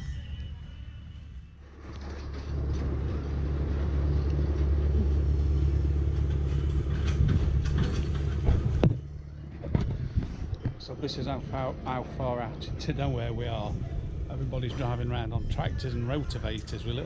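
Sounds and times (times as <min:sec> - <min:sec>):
tractor engine humming: 0:00.0 - 0:17.0.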